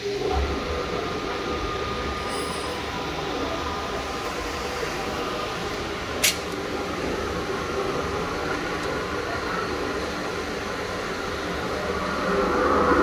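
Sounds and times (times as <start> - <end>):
mixer drone: 0.0 - 13.0
sharp click: 6.2 - 6.5.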